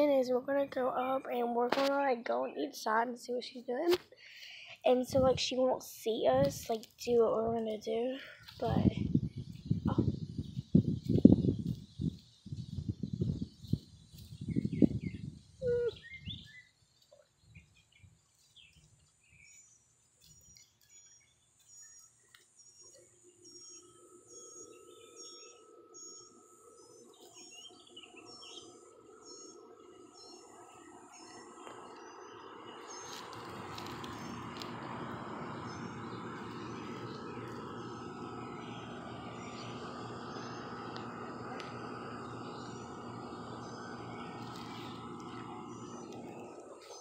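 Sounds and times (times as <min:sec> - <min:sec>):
steady rustling background: 0:00.0 - 0:15.6
small birds chirping: 0:00.0 - 0:47.0
wind buffeting microphone: 0:08.5 - 0:16.5.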